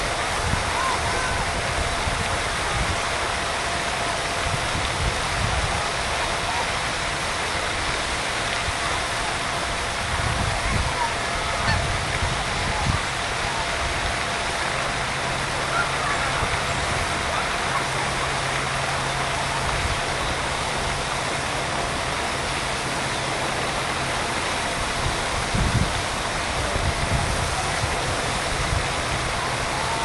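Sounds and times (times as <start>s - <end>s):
outdoor hiss with low rumbling: 0.0s - 30.0s
geese honking: 11.4s - 11.9s.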